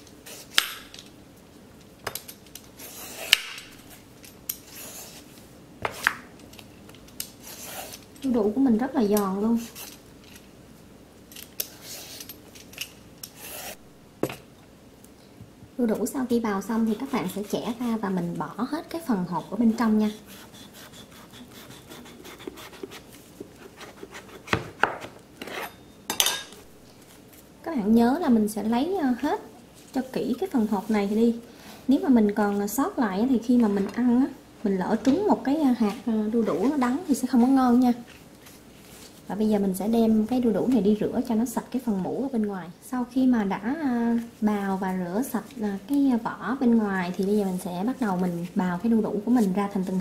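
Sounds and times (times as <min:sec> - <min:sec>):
peeler scraping papaya skin: 0:19.2 - 0:24.6.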